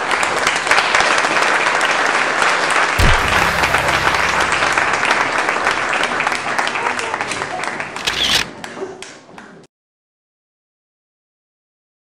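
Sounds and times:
audience applauding: 0:00.0 - 0:08.8
deep low tone swooping down: 0:03.0 - 0:06.7.

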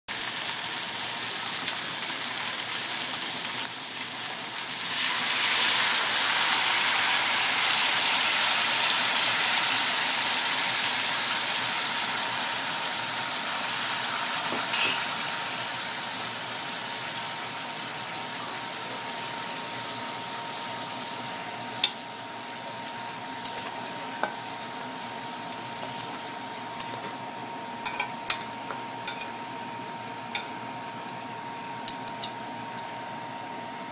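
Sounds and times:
wine sizzling in hot pot: 0:00.1 - 0:33.9.

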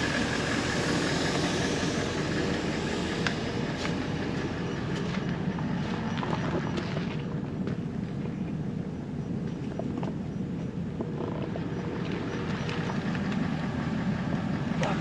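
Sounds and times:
air hissing from tyre valve: 0:00.0 - 0:04.8.

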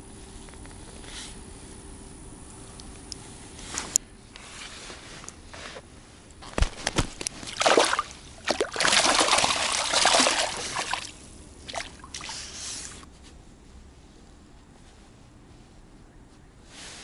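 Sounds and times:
water splashing and sloshing: 0:06.4 - 0:13.1.

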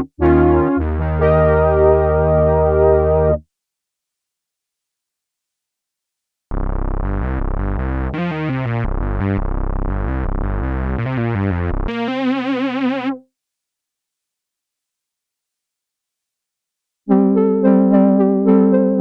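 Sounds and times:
synthesizer notes: 0:00.0 - 0:03.4.

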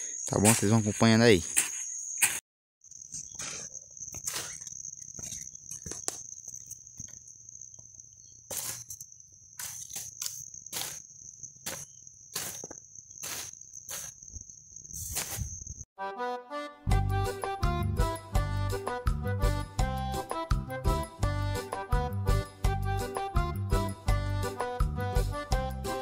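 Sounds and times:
insect trilling: 0:00.0 - 0:15.9
hoe chopping and scraping soil: 0:01.5 - 0:02.4, 0:03.1 - 0:06.7, 0:08.4 - 0:14.3, 0:15.0 - 0:15.6.

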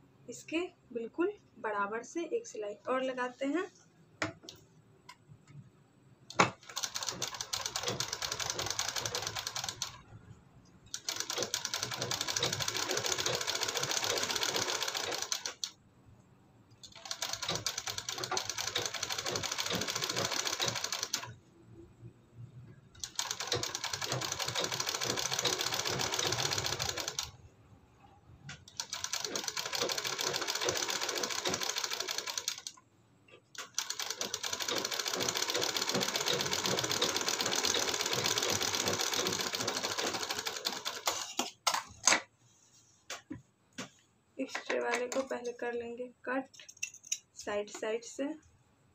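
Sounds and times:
sewing machine stitching: 0:06.3 - 0:10.0, 0:10.9 - 0:15.7, 0:16.9 - 0:21.4, 0:23.0 - 0:27.4, 0:28.7 - 0:32.8, 0:33.6 - 0:41.4.

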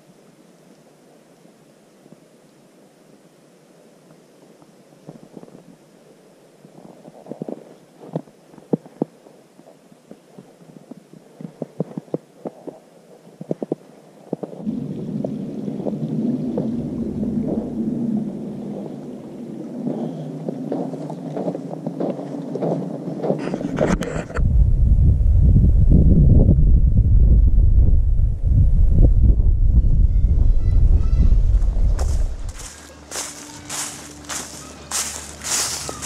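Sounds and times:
snow crunching: 0:31.6 - 0:36.0.

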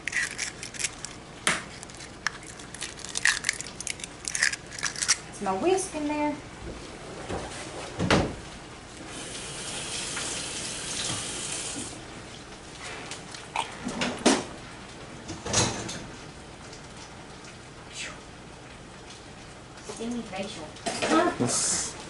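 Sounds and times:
water running from tap: 0:09.1 - 0:12.0.

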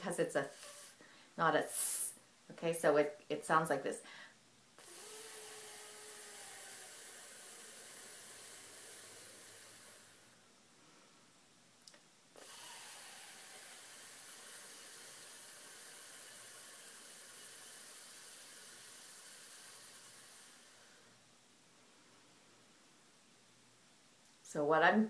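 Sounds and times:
woman exhaling breathy hiss: 0:01.7 - 0:02.2.

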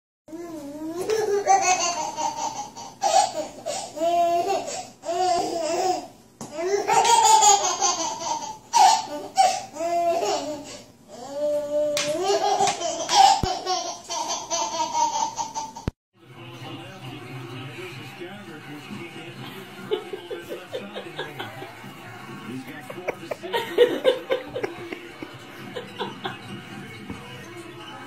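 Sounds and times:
baby laughing and squealing: 0:00.7 - 0:15.8.

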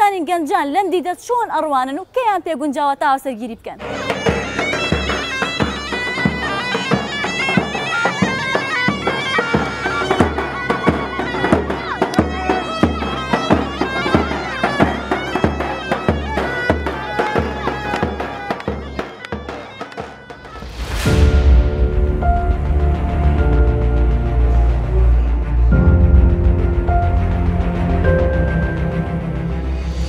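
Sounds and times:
reed pipe melody: 0:03.8 - 0:30.0
bass drum beating: 0:20.4 - 0:29.0.

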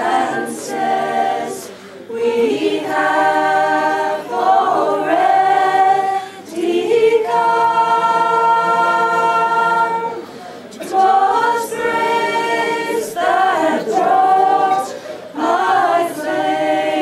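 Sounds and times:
choir singing in harmony: 0:00.0 - 0:17.0
singers breathing: 0:01.7 - 0:02.1, 0:06.2 - 0:06.5, 0:10.2 - 0:10.8, 0:14.9 - 0:15.4.

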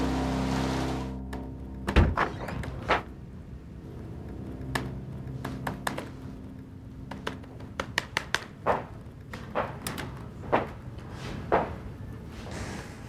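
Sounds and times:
laptop keyboard typing: 0:07.0 - 0:10.0.

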